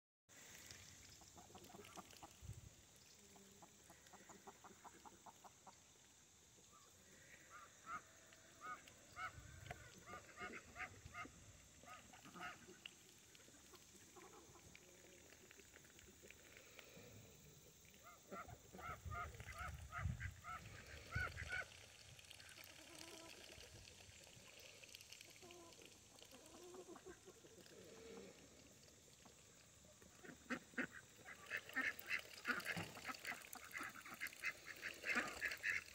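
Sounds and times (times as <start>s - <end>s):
fowl calling: 18.0s - 23.5s.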